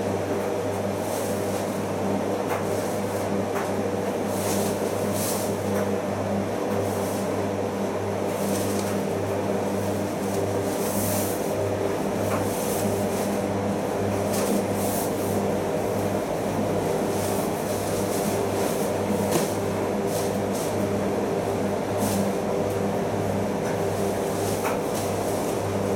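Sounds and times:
washing machine motor hum: 0.0 - 25.9.

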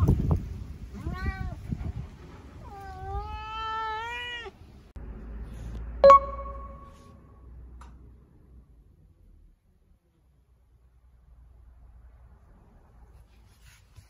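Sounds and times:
cat meowing: 1.0 - 1.6, 2.6 - 4.6.

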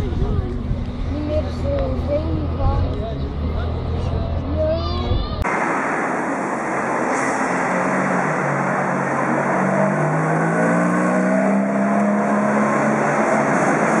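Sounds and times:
street noise: 0.0 - 14.0
sports car engine accelerating: 7.6 - 14.0.

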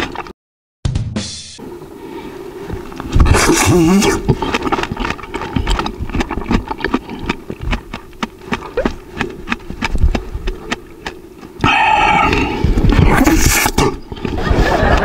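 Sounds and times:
wet chewing and crunching: 2.7 - 14.5.

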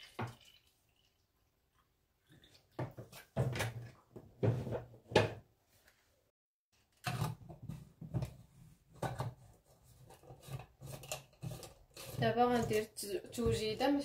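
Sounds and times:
plastic bottle knocks and clatter: 2.8 - 5.4.

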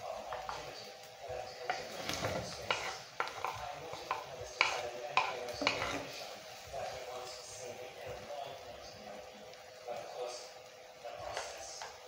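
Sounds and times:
wooden spoon scraping frying pan: 0.0 - 8.2.

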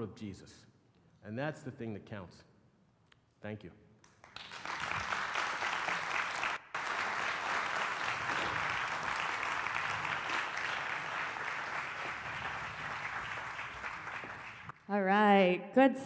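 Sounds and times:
audience applauding: 4.2 - 14.8.

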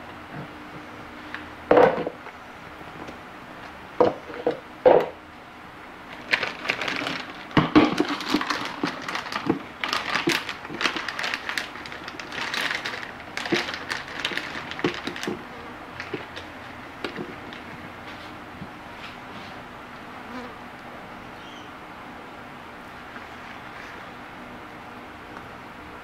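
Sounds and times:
knocks on kitchen counter: 1.7 - 2.2
containers and utensils clattering: 6.1 - 17.8.

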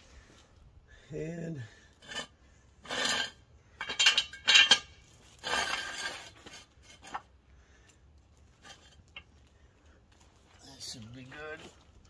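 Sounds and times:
rough metal scraping: 1.9 - 7.4, 8.5 - 9.4
metal jack stand clanking: 3.0 - 5.0.

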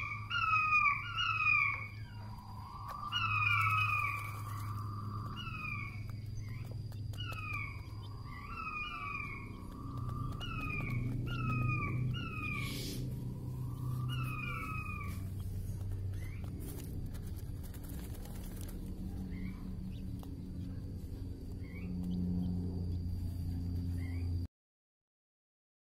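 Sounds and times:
quail calling: 0.0 - 16.9
steady low hum: 0.0 - 24.5.

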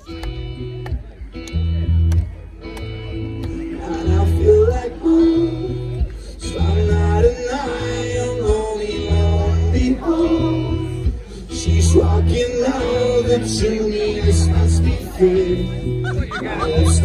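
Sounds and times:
guitar: 0.0 - 17.0
repeating bass line: 0.0 - 17.0
person singing: 3.5 - 17.0.

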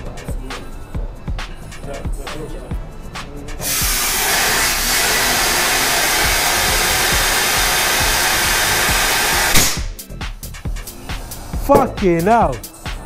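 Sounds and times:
compressed air hissing: 3.6 - 10.0, 10.8 - 11.8.

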